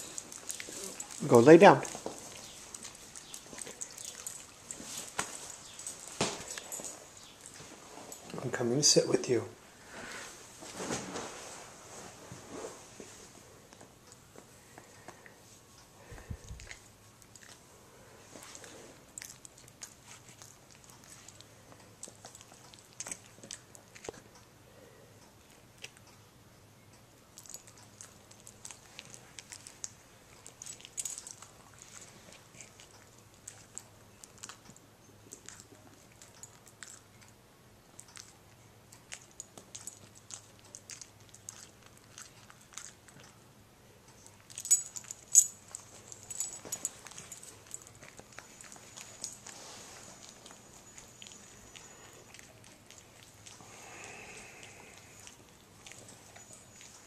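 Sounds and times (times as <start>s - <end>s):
metal collar tag jingle: 44.5s - 48.0s.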